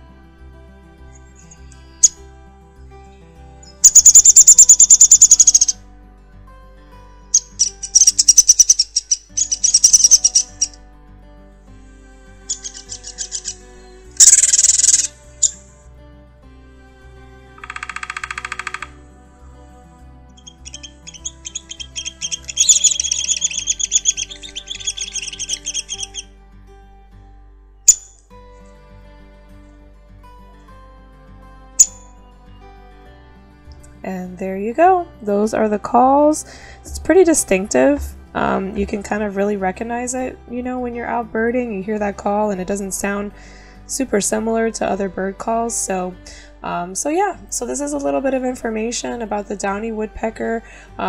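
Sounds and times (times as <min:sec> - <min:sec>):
quiet background music: 0:00.0 - 0:51.0
woodpecker whinny call: 0:03.7 - 0:05.8, 0:07.4 - 0:10.8, 0:12.5 - 0:15.6, 0:17.6 - 0:19.0, 0:20.3 - 0:26.3.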